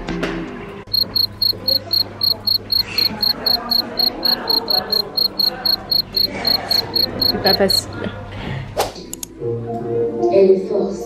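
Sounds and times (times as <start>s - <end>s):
short high-pitched beeps: 0.9s - 7.9s
faint voices: 1.2s - 8.8s.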